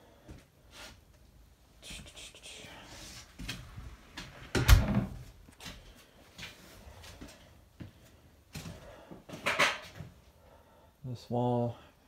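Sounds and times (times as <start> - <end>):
wooden door thumping shut: 4.6 - 5.2.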